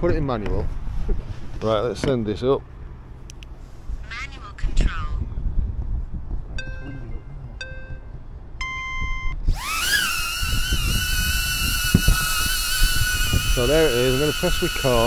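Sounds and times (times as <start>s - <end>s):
wind rumble on microphone: 3.8s - 15.0s
drone beeps: 6.6s - 9.4s
drone propellers whining: 9.4s - 15.0s.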